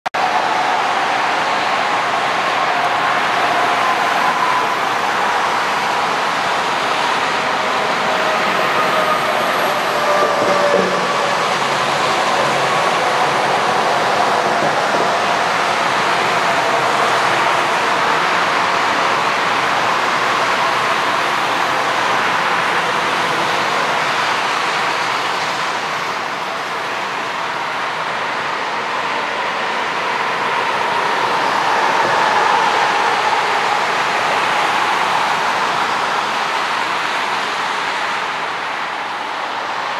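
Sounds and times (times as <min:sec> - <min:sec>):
jet engines rushing with whine: 0:00.2 - 0:39.9
distant jet engines whining: 0:01.3 - 0:19.0.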